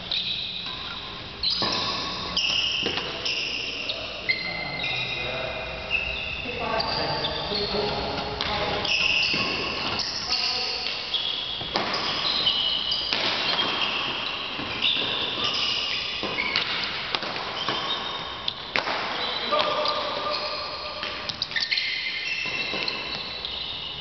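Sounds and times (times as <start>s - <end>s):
shoes squeaking on court floor: 0.0s - 24.0s
racket hitting shuttlecock: 1.4s - 3.7s, 7.9s - 23.6s.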